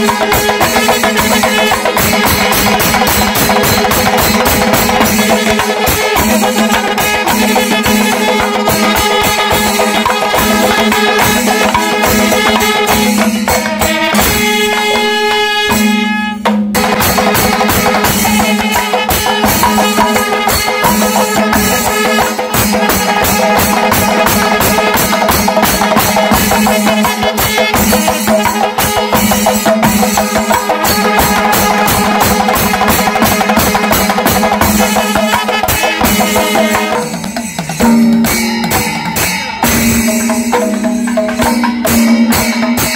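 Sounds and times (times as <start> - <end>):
brass horns blowing: 0.0 - 3.5, 4.2 - 37.2
fast dense drumming: 0.0 - 15.0, 16.4 - 42.9
metallic cymbal clashes: 0.0 - 42.9.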